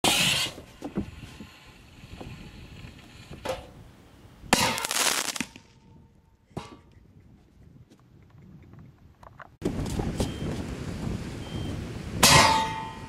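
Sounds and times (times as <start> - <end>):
fireworks popping: 4.5 - 6.0.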